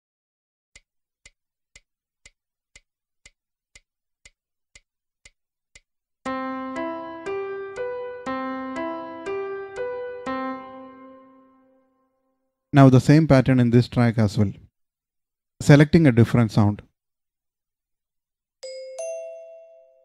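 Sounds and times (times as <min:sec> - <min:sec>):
piano-like keyboard notes: 0:06.3 - 0:12.0, 0:18.6 - 0:20.0.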